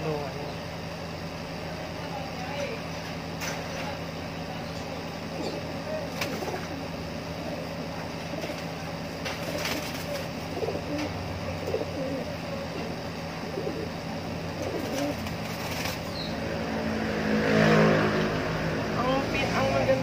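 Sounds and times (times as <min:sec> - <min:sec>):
pigeons cooing: 0:04.8 - 0:16.4.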